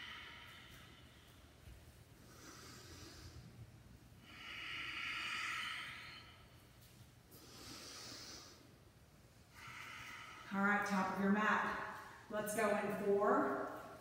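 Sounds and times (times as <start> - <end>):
woman breathing heavily: 0.0 - 11.2.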